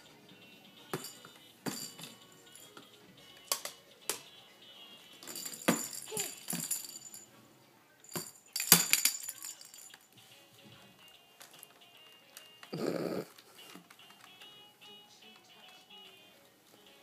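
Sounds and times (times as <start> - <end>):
plastic toys clacking: 8.1 - 10.1, 11.4 - 12.7, 13.3 - 14.5.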